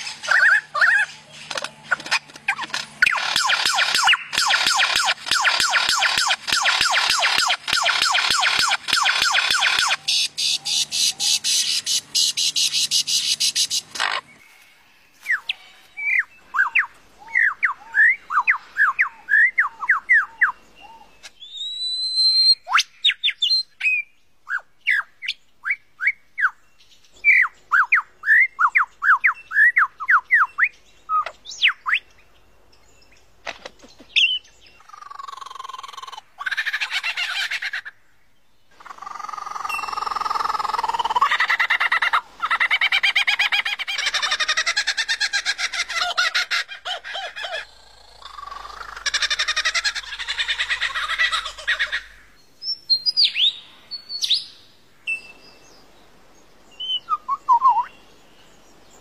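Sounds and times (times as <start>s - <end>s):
harsh bird calls: 0.0s - 25.4s, 33.4s - 55.6s
bird whistled song: 3.0s - 14.5s, 15.3s - 32.2s, 52.6s - 55.8s, 56.7s - 58.2s.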